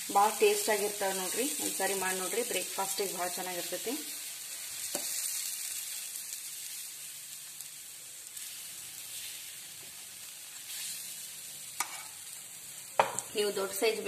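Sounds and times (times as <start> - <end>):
oil sizzling on a griddle: 0.0 - 14.0.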